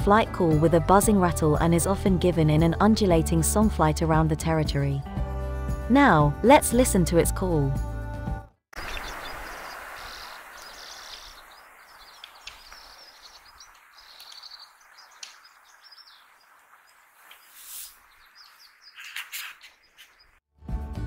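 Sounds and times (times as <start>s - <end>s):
faint steady hiss: 8.8s - 18.2s
bird chirping: 8.8s - 20.4s.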